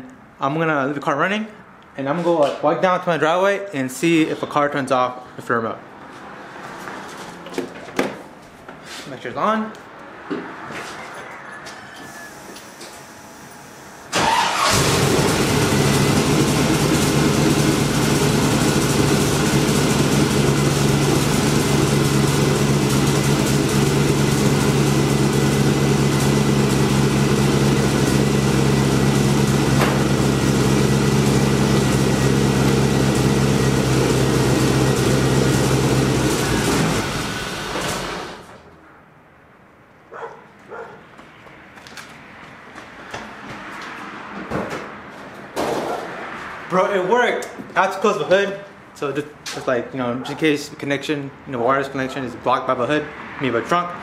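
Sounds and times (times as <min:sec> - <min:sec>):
car engine starting and idling: 0:12.1 - 0:38.8.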